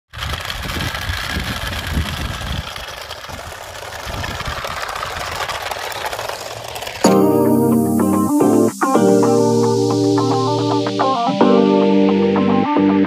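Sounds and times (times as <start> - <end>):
toy truck grinding rattle: 0.1 - 7.1.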